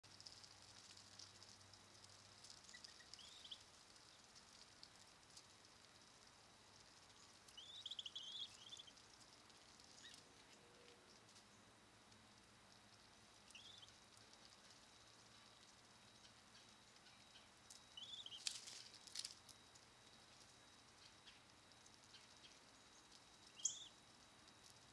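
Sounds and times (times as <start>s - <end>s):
steady high hiss: 0.0s - 24.9s
high bird chirps: 7.6s - 9.0s, 13.5s - 13.9s, 16.2s - 18.5s, 22.1s - 24.0s.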